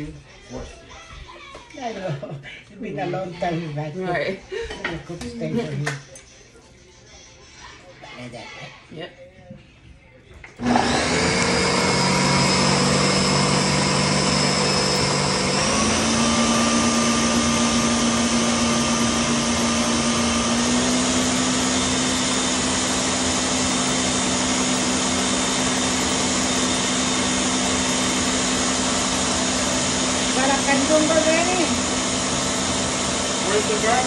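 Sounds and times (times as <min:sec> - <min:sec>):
blender running: 0:10.6 - 0:34.0.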